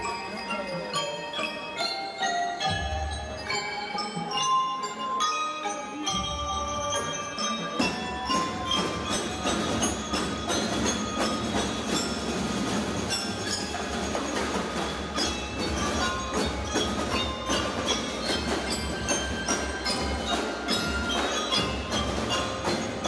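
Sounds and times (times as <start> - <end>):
mallet percussion bell-like melody: 0.0 - 23.0
drum line playing: 7.8 - 23.0.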